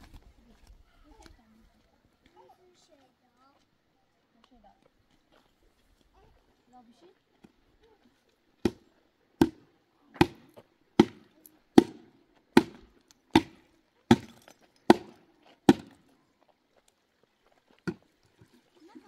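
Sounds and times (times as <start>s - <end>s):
sharp blows on wood: 9.4s - 16.0s.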